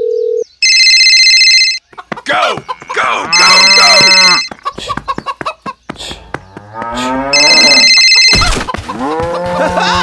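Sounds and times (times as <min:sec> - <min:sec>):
low moo-like calls: 0:06.7 - 0:07.8.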